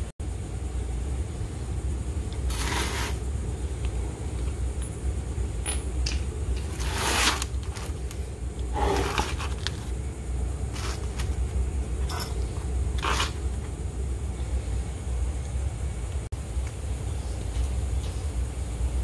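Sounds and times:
low hum: 0.0 - 19.0
cardboard scraping on concrete: 2.4 - 3.2, 6.6 - 9.9, 10.7 - 13.7.

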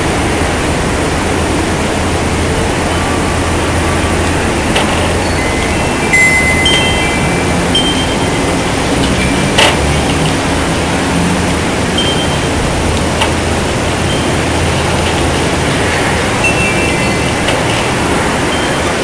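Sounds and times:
loud steady rushing noise: 0.0 - 19.0
thin high whine: 0.0 - 19.0.

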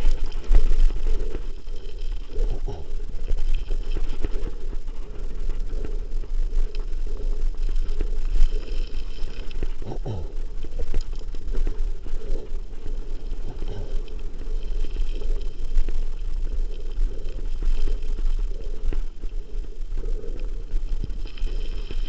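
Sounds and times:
bike rolling on gravel: 20.7 - 22.0.

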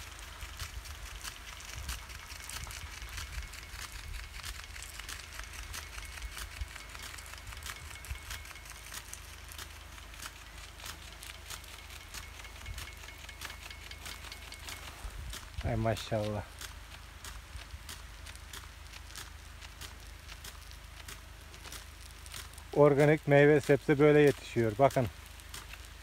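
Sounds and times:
sprinkler heads clicking: 0.0 - 26.0.

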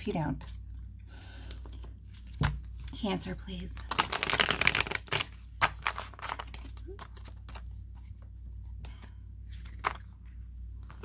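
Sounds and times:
cards handled quietly: 3.9 - 11.0.

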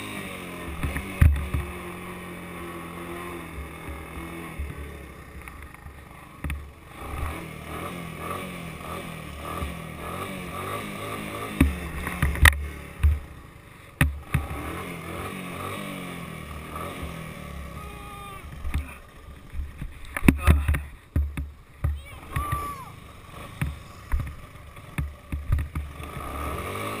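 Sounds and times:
engine revving: 6.9 - 13.2, 14.2 - 19.6, 22.0 - 27.0.

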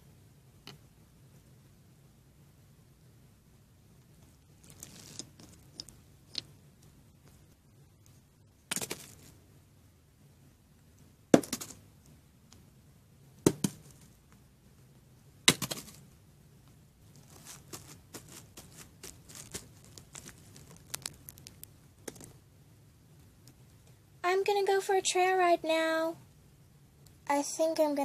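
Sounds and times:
plastic toys knocking on surface: 11.4 - 11.8, 13.5 - 13.8.

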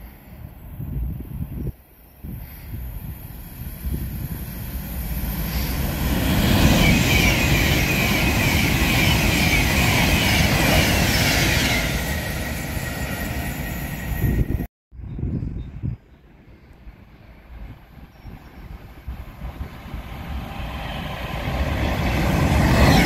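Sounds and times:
electric train passing through: 0.0 - 14.7, 16.2 - 23.0.

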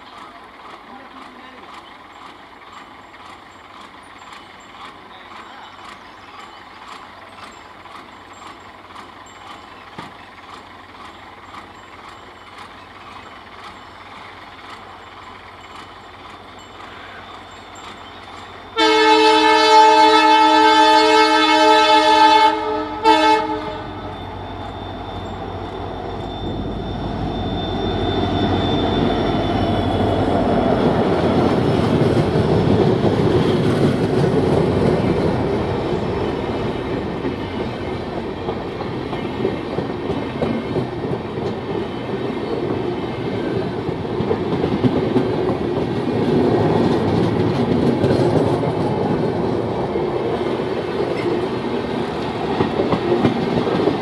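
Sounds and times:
train wheels clattering over rails: 0.0 - 21.9, 23.1 - 54.0
locomotive engine rumble: 0.0 - 54.0
locomotive multi-tone horn: 18.7 - 25.9.

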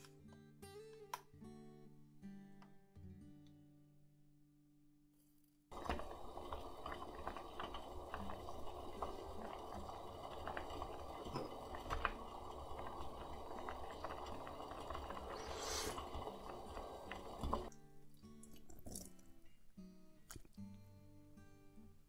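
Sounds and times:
stock boiling in a saucepan: 5.7 - 17.7
short hiss: 15.4 - 16.1.

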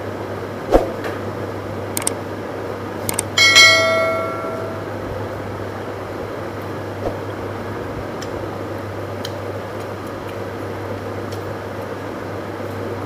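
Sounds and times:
steady low hum: 0.0 - 13.0
quick clicks: 2.0 - 2.2, 3.1 - 3.4
bright bell chime: 3.4 - 5.0.

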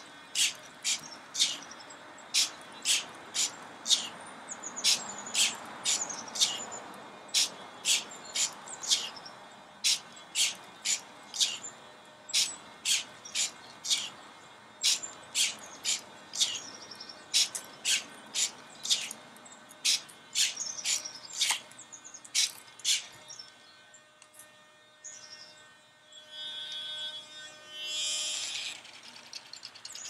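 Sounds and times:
birds chirping: 0.0 - 24.2
servo motors whirring: 9.8 - 11.6, 14.8 - 19.2.

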